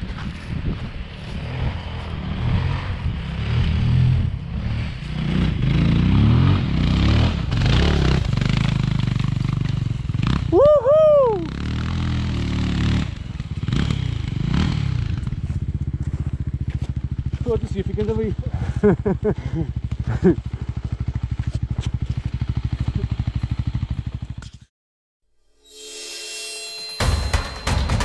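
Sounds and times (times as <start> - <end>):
motorcycle engines revving: 0.0 - 24.5
loud high whoop: 10.5 - 11.5.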